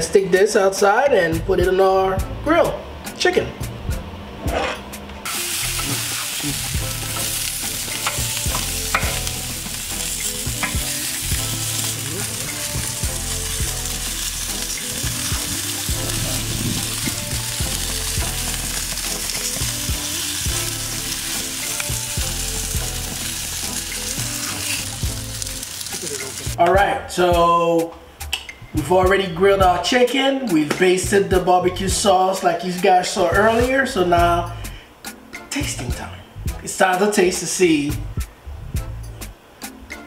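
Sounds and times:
chicken sizzling on a grill: 5.3s - 26.6s.

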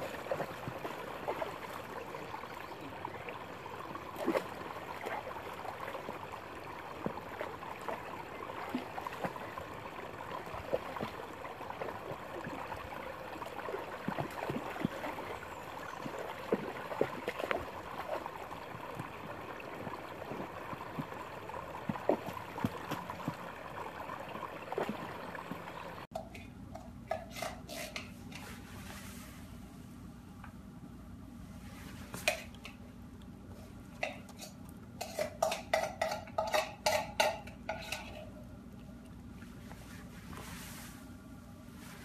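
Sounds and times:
dog splashing in water: 0.0s - 2.6s, 3.9s - 25.6s
creek water running: 0.0s - 26.1s, 34.0s - 41.1s.

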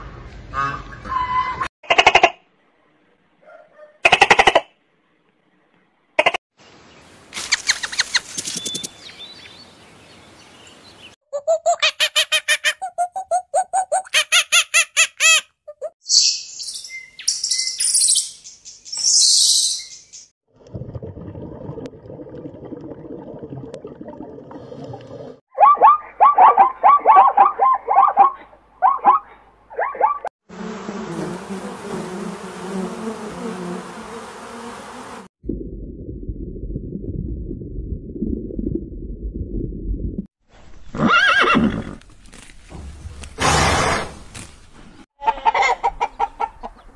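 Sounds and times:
bees buzzing: 30.5s - 35.3s
muffled underwater rumble: 35.4s - 40.2s
horse whinnying: 40.9s - 42.0s.

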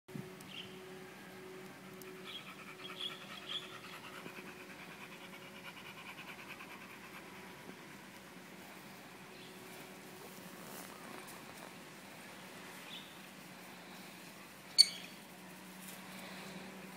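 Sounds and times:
dog panting rapidly: 2.1s - 7.8s.

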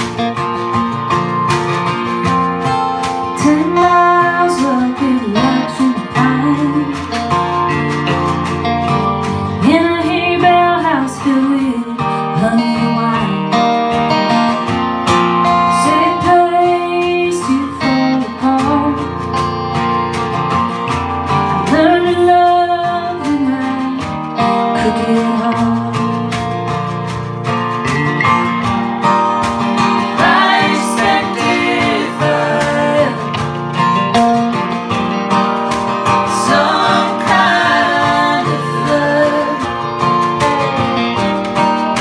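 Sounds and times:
strummed acoustic guitars: 0.0s - 42.0s
woman singing: 3.3s - 7.4s, 9.5s - 13.8s, 15.7s - 19.2s, 21.6s - 26.4s, 30.1s - 33.5s, 36.2s - 40.0s.

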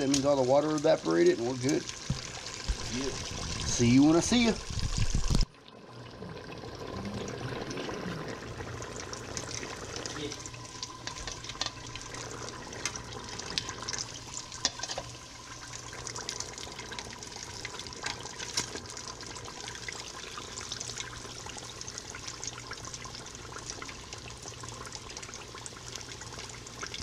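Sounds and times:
fish deep-frying in oil: 0.0s - 5.6s, 6.6s - 27.0s
oil popping and crackling: 0.0s - 5.6s, 6.5s - 27.0s.

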